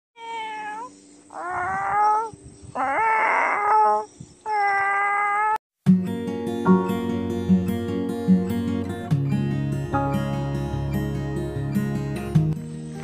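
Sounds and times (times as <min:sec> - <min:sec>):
cat meowing: 0:00.2 - 0:05.6
acoustic guitar music: 0:05.8 - 0:13.0.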